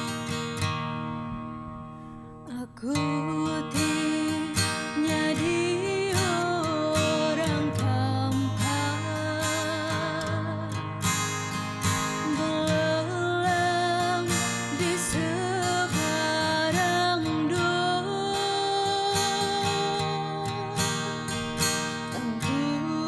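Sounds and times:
acoustic guitar: 0:00.0 - 0:23.0
girl singing into a microphone: 0:02.4 - 0:11.1, 0:11.9 - 0:23.0.

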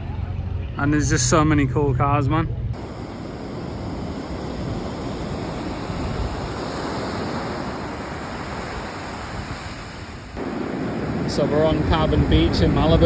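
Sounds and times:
ocean surf breaking on beach: 0:02.8 - 0:13.0.

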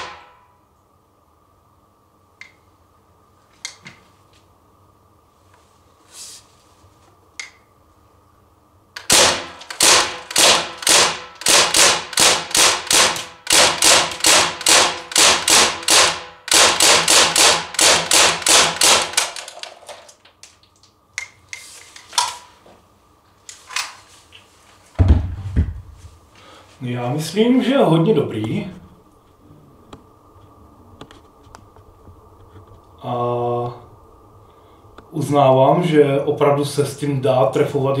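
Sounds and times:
bb gun shots cracking: 0:09.0 - 0:19.7.

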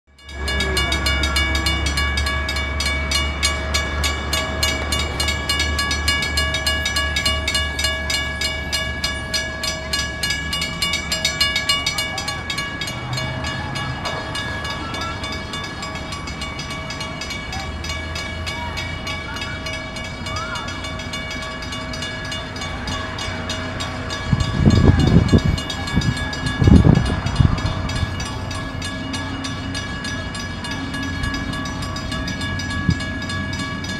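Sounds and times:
railroad crossing bell ringing: 0:00.1 - 0:33.9.

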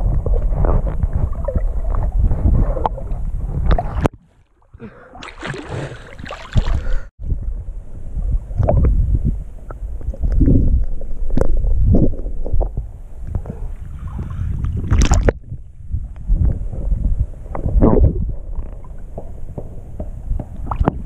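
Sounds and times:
muffled underwater rumble: 0:00.0 - 0:04.1, 0:06.8 - 0:21.0
water splashing: 0:03.0 - 0:07.1.

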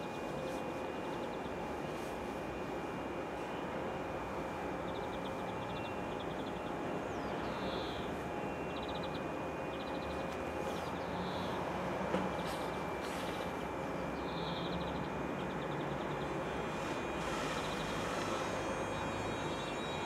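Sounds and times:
electric train humming with whine: 0:00.0 - 0:20.0
birds chirping and trilling: 0:04.8 - 0:11.7, 0:13.9 - 0:20.0.

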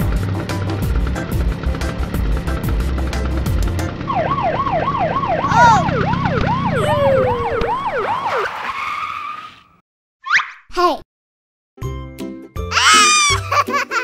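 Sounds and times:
police siren wailing: 0:04.0 - 0:08.8
second siren overlapping: 0:04.0 - 0:08.8.

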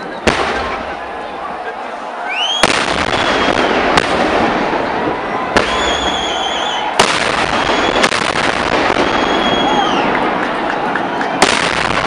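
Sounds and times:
firecrackers banging: 0:00.0 - 0:01.7, 0:02.4 - 0:12.0
dense firecracker crackling: 0:00.0 - 0:12.0
high firework whistle: 0:02.3 - 0:04.0, 0:05.6 - 0:10.2.

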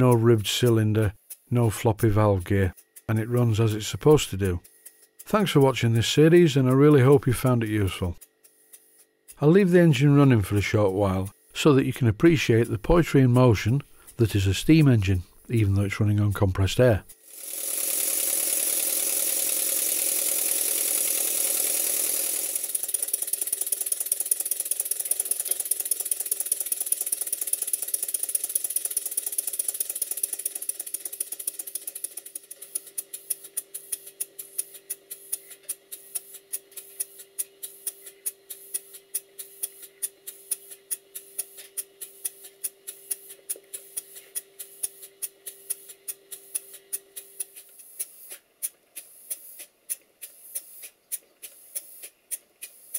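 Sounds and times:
model steam engine exhaust puffs: 0:13.6 - 0:16.0, 0:17.1 - 0:52.9
air hissing: 0:32.4 - 0:48.4, 0:49.0 - 0:52.9.

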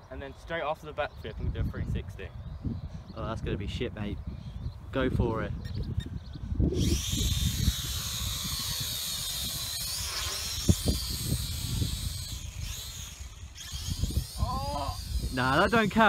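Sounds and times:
wind rumble on microphone: 0:01.0 - 0:16.0
drone motors whining: 0:05.7 - 0:16.0.

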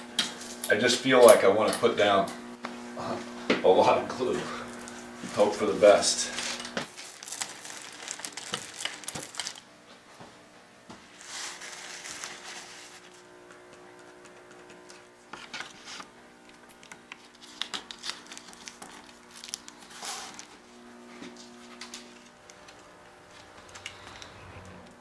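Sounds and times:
plastic and paper crinkling: 0:04.8 - 0:09.7, 0:11.2 - 0:13.2, 0:16.8 - 0:20.7.

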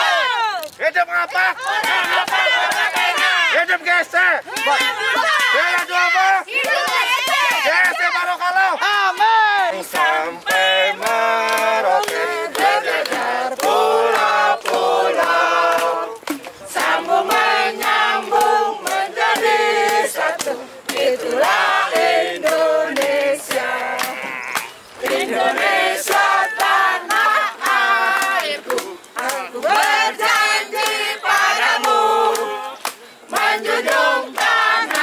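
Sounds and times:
group of voices singing: 0:01.6 - 0:03.6, 0:04.5 - 0:35.0.

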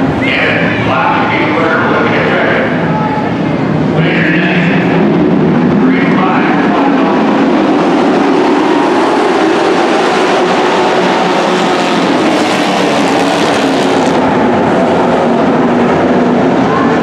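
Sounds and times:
racing truck engines: 0:00.0 - 0:17.0.

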